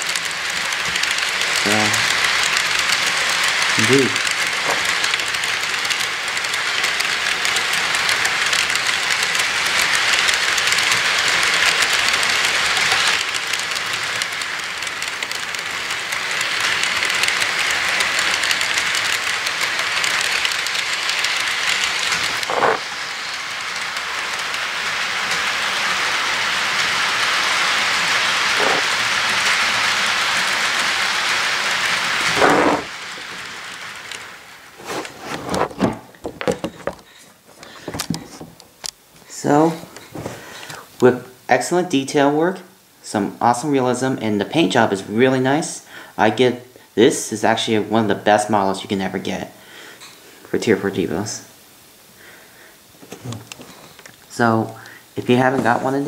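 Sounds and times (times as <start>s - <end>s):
model train wheels rattling: 0.0s - 40.9s, 53.0s - 56.0s.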